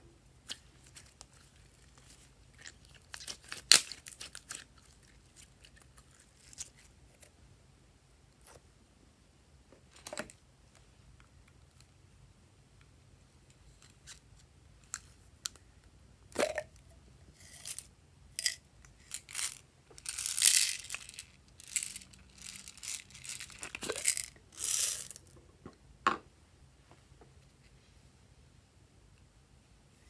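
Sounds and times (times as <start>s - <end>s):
plastic slime crinkling: 0.4s - 6.9s, 19.1s - 25.2s.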